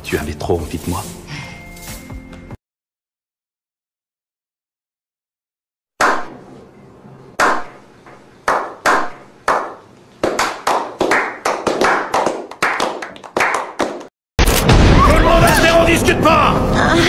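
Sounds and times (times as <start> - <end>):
men clapping with echo: 8.5 - 14.1.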